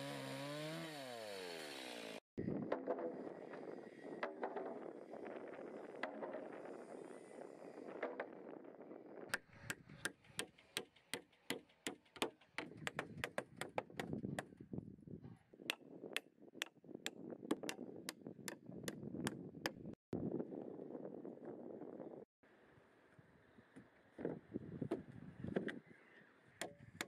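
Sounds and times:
hammer driving nails into wood: 9.4 - 14.1.

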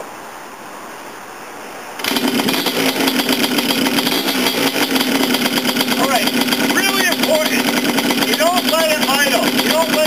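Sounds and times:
engine kick-started: 2.0 - 10.0
engine running at fast idle: 2.0 - 10.0.

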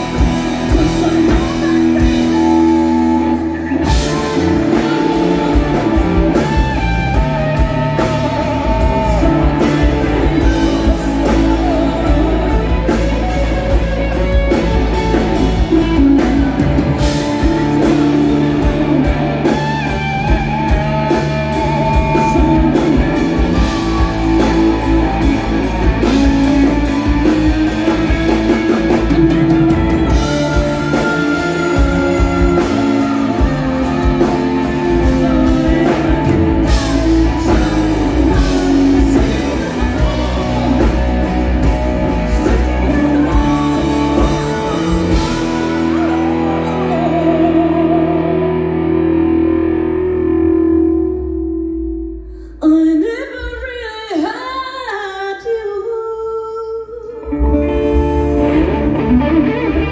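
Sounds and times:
drums steady beat: 0.0 - 47.7
electric guitar bending notes: 0.0 - 52.5, 57.1 - 59.9
bass guitar: 0.0 - 53.4, 57.1 - 59.9.

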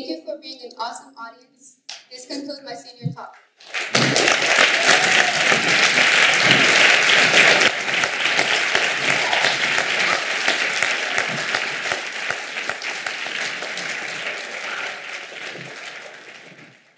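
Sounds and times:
audience applauding: 3.6 - 16.9.

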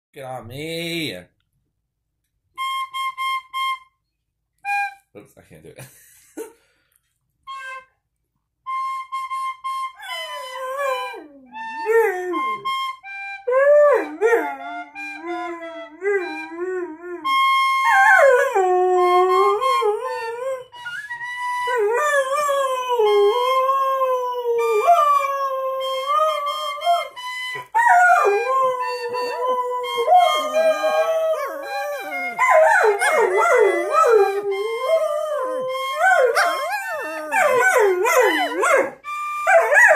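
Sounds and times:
wind instrument tune: 2.6 - 4.0, 7.4 - 8.0, 8.6 - 39.9
dogs howling: 21.8 - 39.9.

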